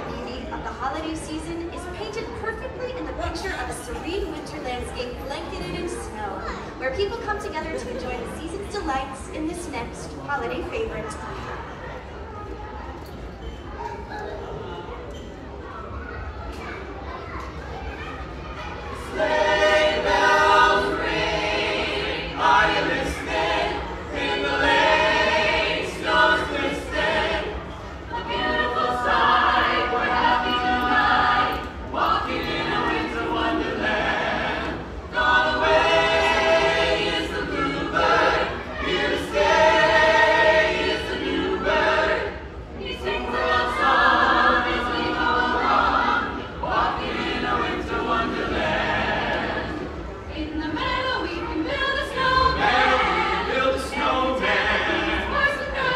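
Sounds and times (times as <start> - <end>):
group singing a cappella in harmony: 19.0 - 55.9.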